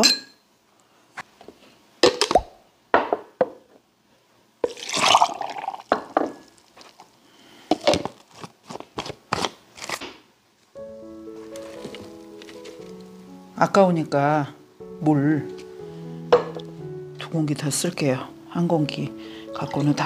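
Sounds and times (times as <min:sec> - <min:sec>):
water pouring: 0:04.6 - 0:06.6
light background music: 0:10.8 - 0:20.0
bowls knocking and tapping: 0:16.3 - 0:16.7.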